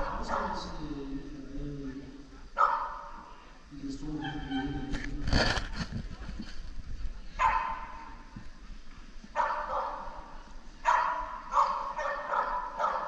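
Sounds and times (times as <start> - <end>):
dog barking with echo: 0.0 - 0.8, 2.6 - 3.2, 7.4 - 8.1, 9.4 - 13.0.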